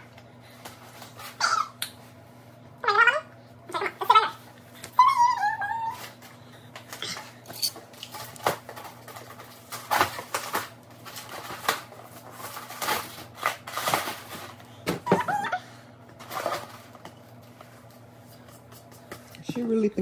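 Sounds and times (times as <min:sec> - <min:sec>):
packaging rustling and crinkling: 0:07.8 - 0:14.6.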